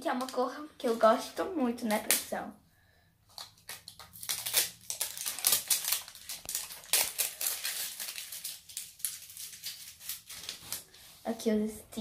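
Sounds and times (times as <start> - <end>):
plastic packaging crinkling: 3.2 - 11.0.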